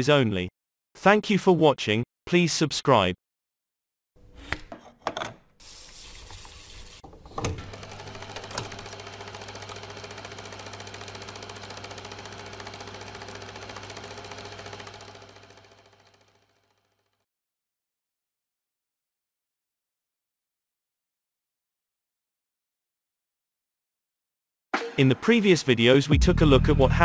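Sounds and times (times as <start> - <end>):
film reel clicks and knocks: 7.1 - 9.0
film projector clattering: 7.1 - 17.2.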